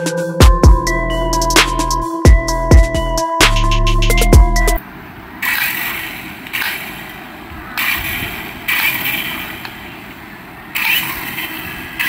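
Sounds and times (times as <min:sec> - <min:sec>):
toy helicopter rotor whirring: 0:10.7 - 0:12.0.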